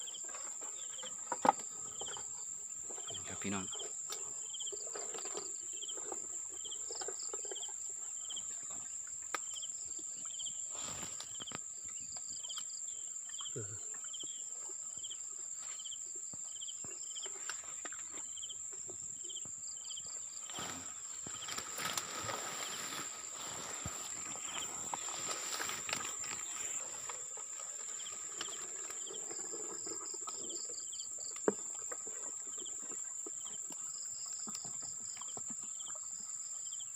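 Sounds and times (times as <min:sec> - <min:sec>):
insect chirp: 0:00.0 - 0:36.9
insects droning: 0:00.0 - 0:36.9
grass rustling: 0:20.2 - 0:30.0.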